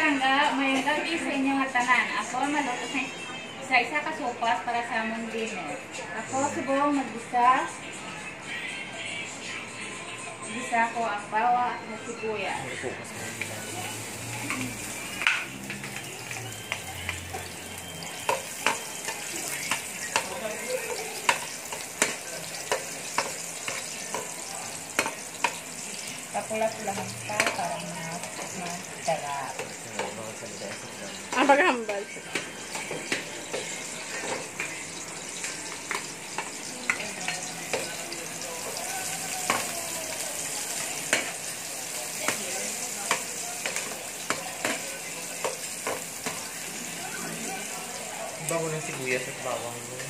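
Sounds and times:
garlic sizzling in hot oil: 13.1 - 50.0.

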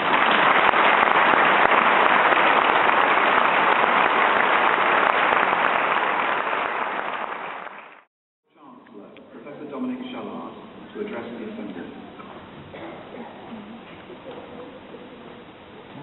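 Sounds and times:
large audience applauding: 0.0 - 8.1.

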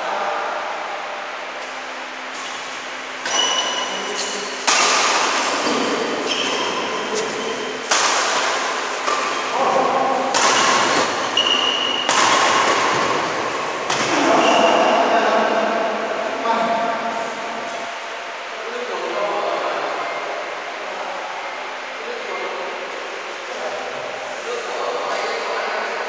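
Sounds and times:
shoes squeaking on court: 2.3 - 7.8, 10.6 - 12.1
racket hitting shuttlecock: 2.4 - 14.6.

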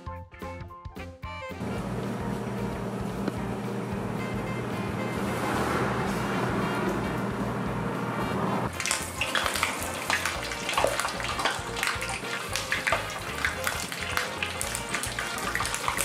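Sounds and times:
fish deep-frying in oil: 8.7 - 16.0.

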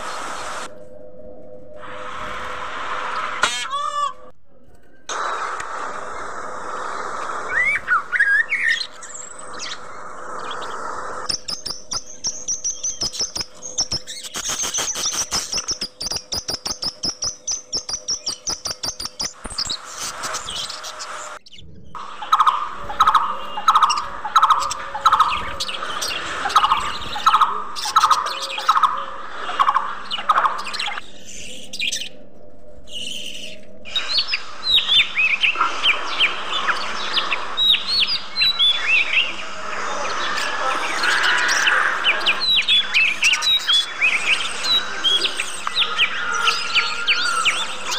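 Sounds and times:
high steady bird trill: 5.8 - 32.2, 32.9 - 47.9
budgerigars chirping and chattering: 7.2 - 32.1, 32.9 - 47.9.

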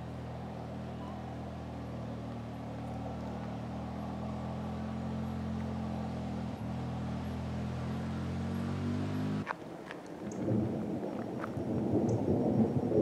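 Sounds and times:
engine idling: 0.0 - 8.7.

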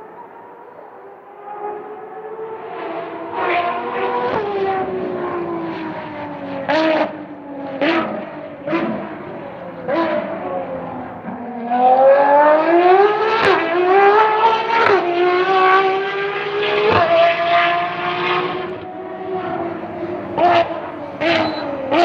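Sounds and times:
race car engine accelerating: 0.1 - 22.0
gear upshifts: 18.1 - 22.0.

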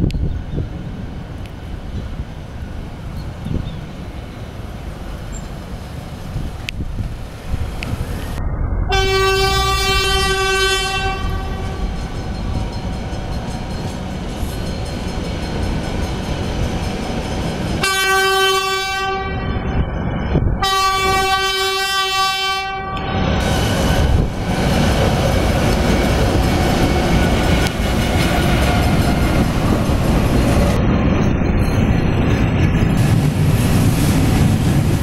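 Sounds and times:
low rumble of train: 0.0 - 35.0
locomotive air horn blasts: 8.9 - 12.0, 17.8 - 19.7, 20.6 - 23.2.

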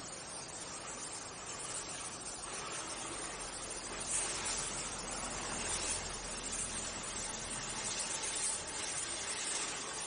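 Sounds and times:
welding hiss: 0.0 - 10.0.

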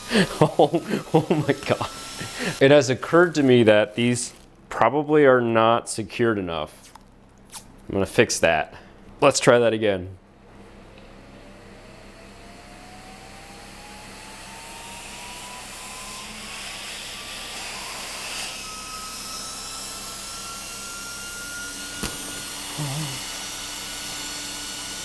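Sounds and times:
small fan whirring: 0.0 - 4.6, 10.4 - 25.0.

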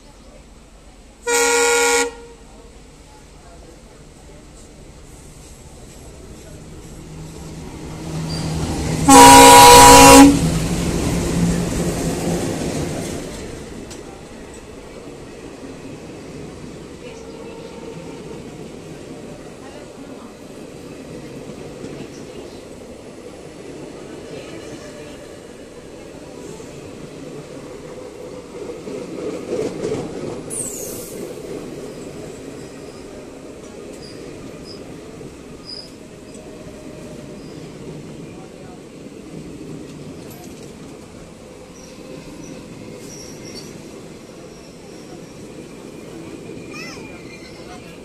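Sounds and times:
train passing rumble: 0.0 - 48.0
locomotive air horn blast: 1.3 - 2.4, 9.0 - 10.4.

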